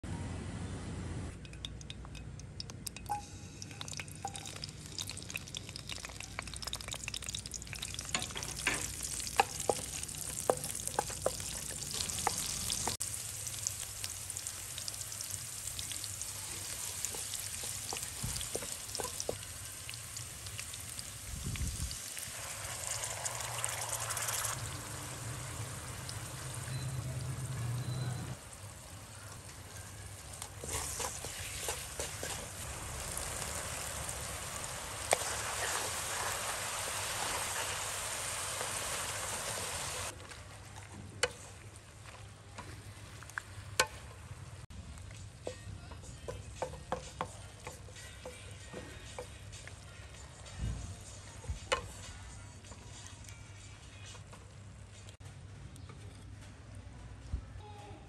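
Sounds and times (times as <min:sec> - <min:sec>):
garlic sizzling in hot oil: 0:03.0 - 0:40.2
spatula scraping wok: 0:30.2 - 0:33.7, 0:35.0 - 0:39.4.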